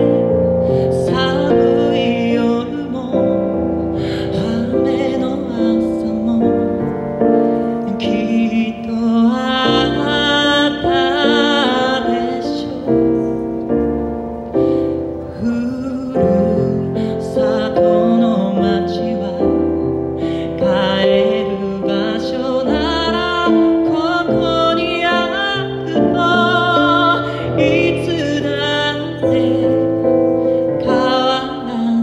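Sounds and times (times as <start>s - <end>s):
man singing with vibrato: 0.0s - 32.0s
piano accompaniment: 0.0s - 32.0s.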